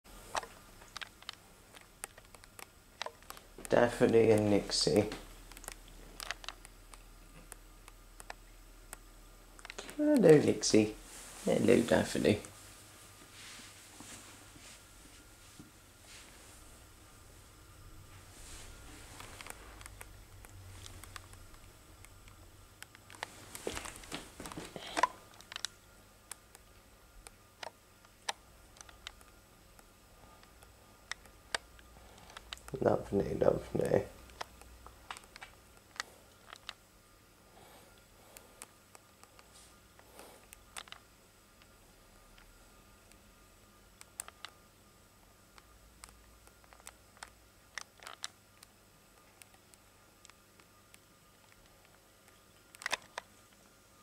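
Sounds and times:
faint small clicks and ticks: 0.3s - 10.5s, 19.0s - 36.8s, 37.9s - 43.3s, 43.9s - 44.6s, 45.5s - 53.8s
soft clicks: 0.3s - 10.5s.

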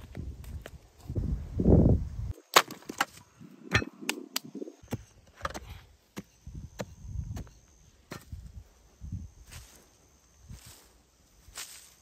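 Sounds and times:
hoe striking hard dirt: 3.7s - 4.2s.

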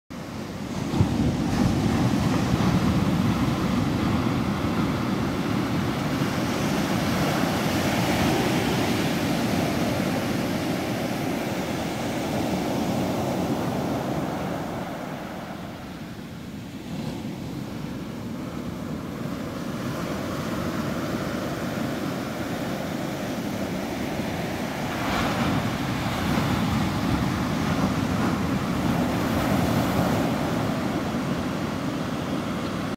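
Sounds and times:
ocean waves on beach: 0.1s - 32.9s.

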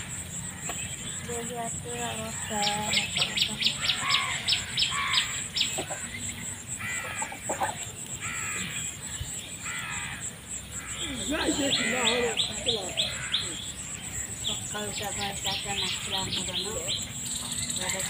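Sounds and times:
geese honking: 9.6s - 17.0s.

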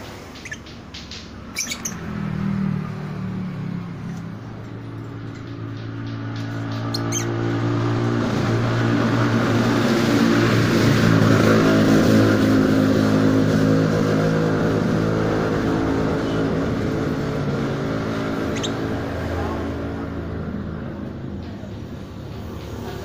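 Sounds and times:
engine humming: 0.0s - 23.0s
bird chirp: 0.3s - 2.3s, 5.2s - 7.6s, 18.4s - 19.0s.

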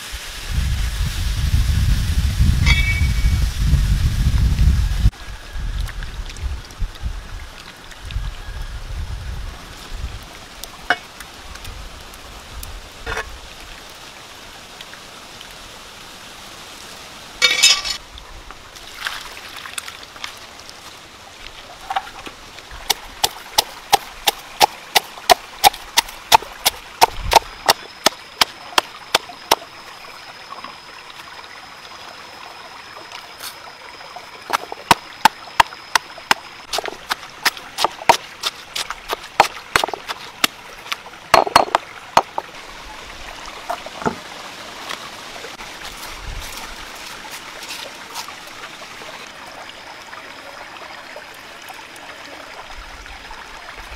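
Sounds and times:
stone pestle pounding in mortar: 36.7s - 40.2s, 41.4s - 42.4s.

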